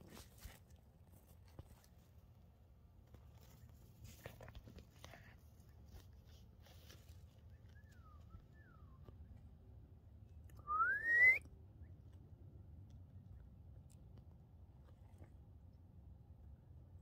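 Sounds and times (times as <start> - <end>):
low background hum: 0.0 - 17.0
faint falling whistles: 10.6 - 11.5
rising whistle: 10.6 - 11.5.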